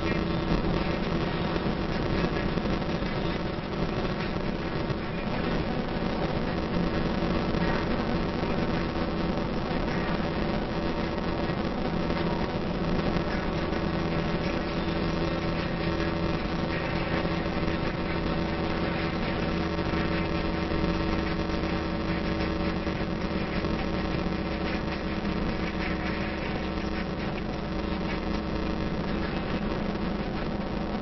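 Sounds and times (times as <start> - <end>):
vehicle engine hum: 0.0 - 31.0.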